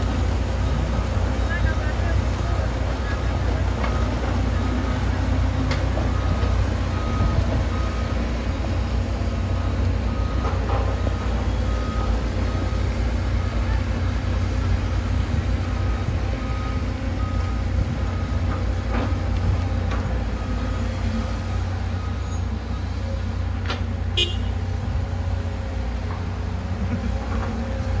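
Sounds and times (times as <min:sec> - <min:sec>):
heavy diesel machinery rumbling: 0:00.0 - 0:28.0
backup alarm beeping: 0:24.2 - 0:24.5.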